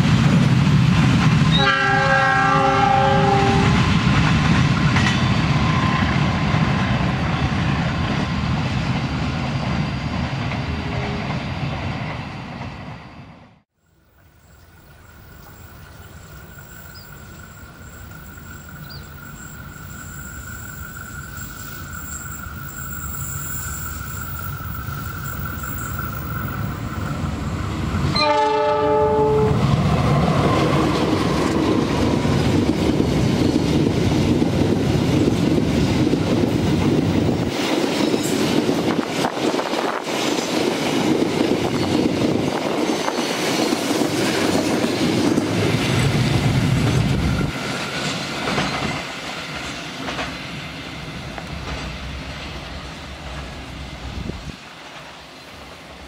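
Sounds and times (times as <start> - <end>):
locomotive horn blast: 1.5 - 3.8, 28.1 - 29.7.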